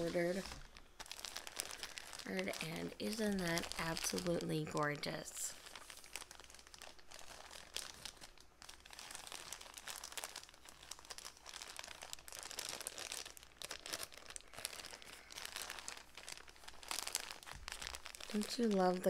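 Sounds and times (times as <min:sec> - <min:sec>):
plastic bag crinkling: 0:00.0 - 0:19.0.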